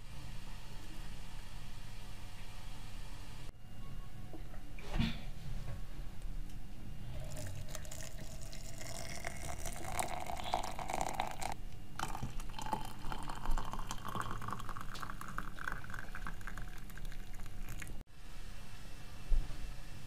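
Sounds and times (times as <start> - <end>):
water poured from a kettle: 7.2 - 18.0.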